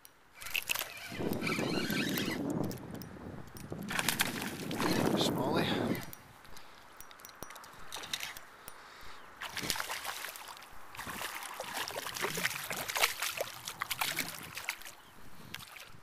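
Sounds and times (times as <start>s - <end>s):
fish splashing at water surface: 9.4s - 15.0s.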